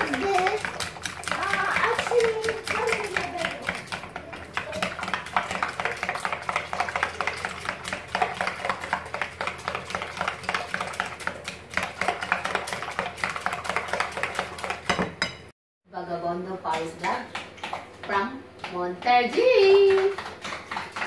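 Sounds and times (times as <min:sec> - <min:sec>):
whisk clicking against glass bowl: 0:00.0 - 0:15.4.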